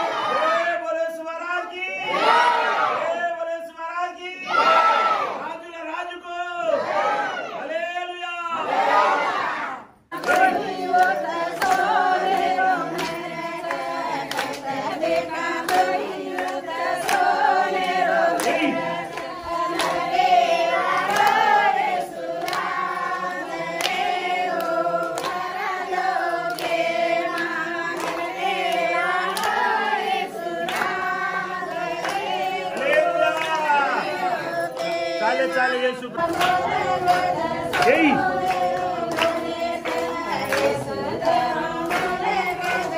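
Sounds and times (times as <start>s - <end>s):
group singing: 0.0s - 5.6s, 6.6s - 7.8s, 8.5s - 42.9s
hand claps: 10.1s - 42.9s.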